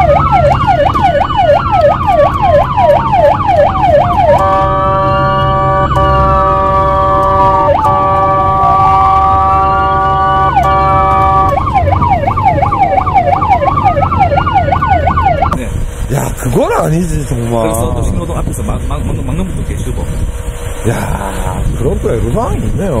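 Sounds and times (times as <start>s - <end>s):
ambulance siren yelp: 0.0s - 15.6s
blaring horn tone: 0.0s - 15.6s
siren wail: 0.0s - 15.6s
engine and road noise: 0.0s - 23.0s.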